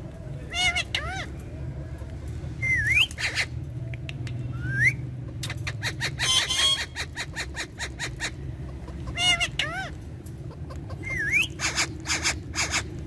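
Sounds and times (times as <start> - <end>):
parakeet harsh chattering: 0.5 - 1.4, 3.1 - 3.6, 5.2 - 13.0.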